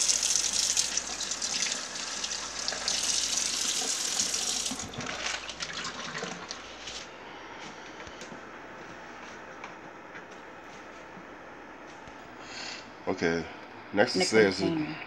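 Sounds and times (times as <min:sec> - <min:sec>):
faucet running into metal sink: 0:00.0 - 0:06.5.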